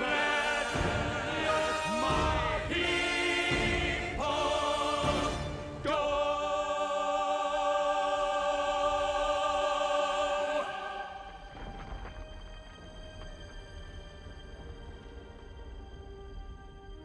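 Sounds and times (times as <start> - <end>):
choir singing with vibrato: 0.0 - 12.2
dark low orchestral music: 0.0 - 17.0.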